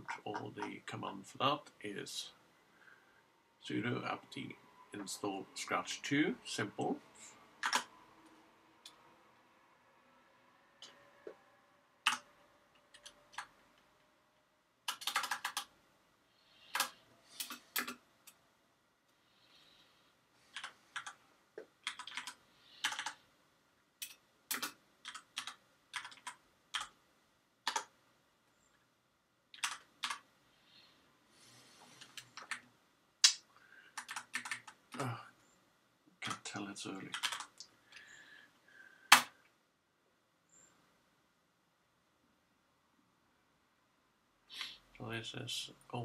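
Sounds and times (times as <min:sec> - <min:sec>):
computer keyboard typing: 0:07.6 - 0:07.9, 0:12.0 - 0:12.3, 0:12.9 - 0:13.6, 0:14.8 - 0:15.7, 0:16.7 - 0:18.0, 0:20.5 - 0:21.2, 0:21.8 - 0:23.2, 0:24.0 - 0:27.0, 0:27.6 - 0:28.0, 0:29.5 - 0:30.2, 0:32.0 - 0:32.7, 0:33.9 - 0:35.0, 0:37.1 - 0:37.6.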